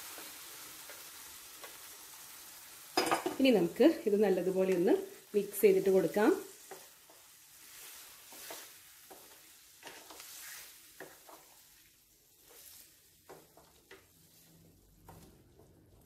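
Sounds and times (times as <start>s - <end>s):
faint sizzling in a frying pan: 0.0s - 16.0s
spatula scraping a pan: 6.5s - 15.7s.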